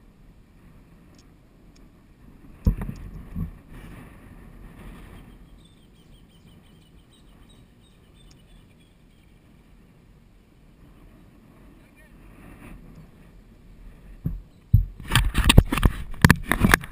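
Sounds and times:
soft thumps: 14.2s - 16.7s.

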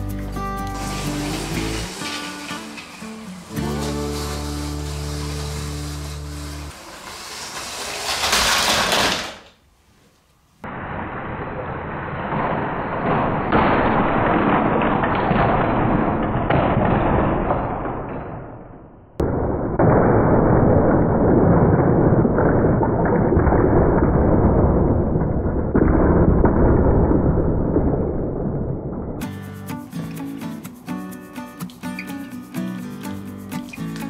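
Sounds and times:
toy trains crashing: 0.7s - 9.6s, 10.7s - 18.7s.

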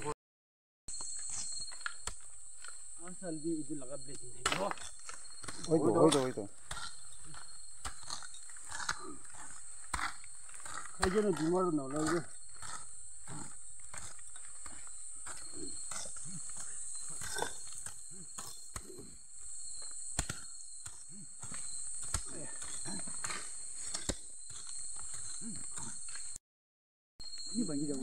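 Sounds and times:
night insects chorus: 0.9s - 26.4s, 27.2s - 28.0s
blade scraping soil: 4.4s - 26.4s.

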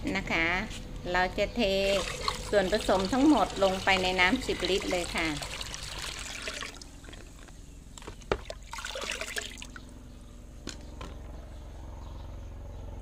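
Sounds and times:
water trickling and dripping: 1.8s - 7.6s, 8.4s - 9.9s
liquid pouring into bucket: 1.8s - 9.9s.

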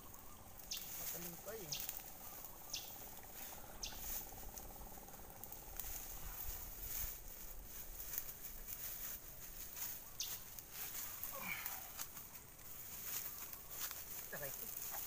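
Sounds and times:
high chirp: 0.0s - 4.1s
dry grass and reeds rustling: 0.0s - 15.0s.

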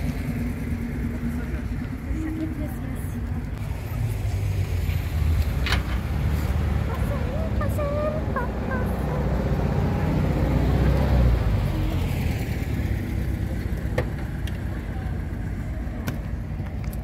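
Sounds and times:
vehicle engine driving past: 3.2s - 15.8s.

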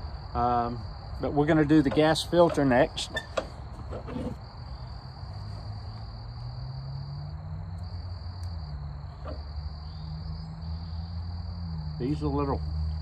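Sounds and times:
high insect drone: 0.0s - 13.0s.

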